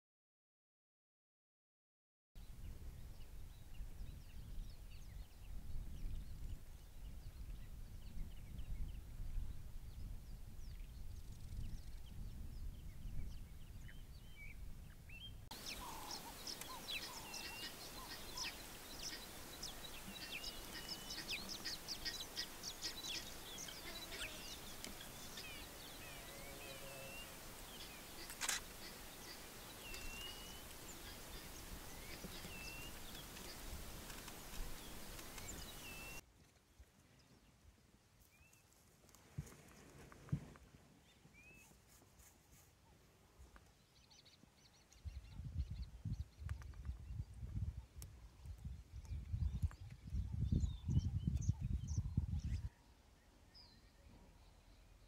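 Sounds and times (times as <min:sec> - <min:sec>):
birds chirping: 0:02.5 - 0:36.2
steady hiss with ticks: 0:15.5 - 0:36.6
sharp click: 0:28.2 - 0:28.7.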